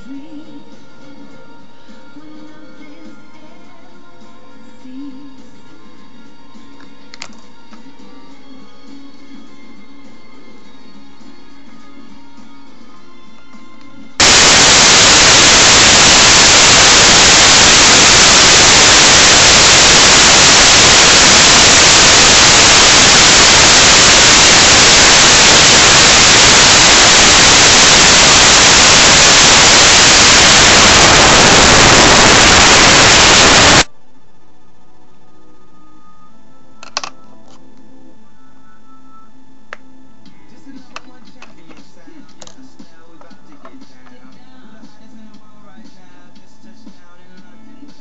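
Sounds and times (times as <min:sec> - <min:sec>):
faint background music: 0:00.0 - 0:14.2, 0:33.9 - 0:48.0
loud static hiss: 0:14.2 - 0:35.5.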